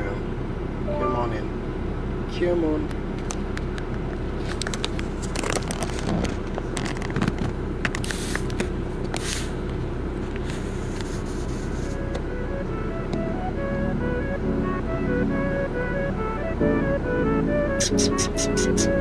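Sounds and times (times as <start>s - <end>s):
car cabin rumble: 2.9s - 19.0s
light clicks and scrapes: 10.3s - 12.0s.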